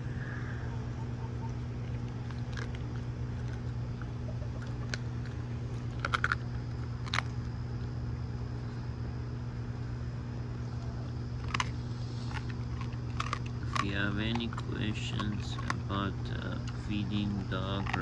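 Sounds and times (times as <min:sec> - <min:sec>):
low hum: 0:00.0 - 0:18.0
dog crunching bones: 0:01.4 - 0:08.0, 0:11.1 - 0:18.0.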